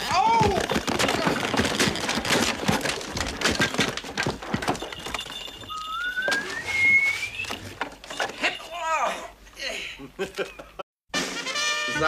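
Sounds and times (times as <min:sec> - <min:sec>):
horse hooves clattering: 0:00.0 - 0:06.6
thin rising tone: 0:05.7 - 0:07.6.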